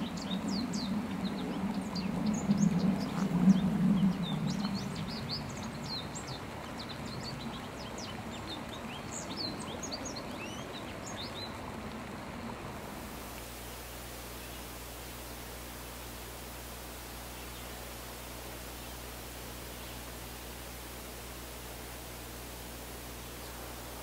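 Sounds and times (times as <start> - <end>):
low hum: 11.8 - 24.0.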